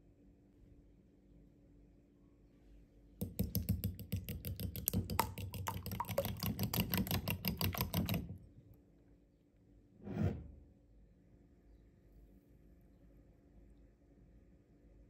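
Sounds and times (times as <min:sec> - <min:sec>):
fork beating eggs in a bowl: 0:03.2 - 0:08.5.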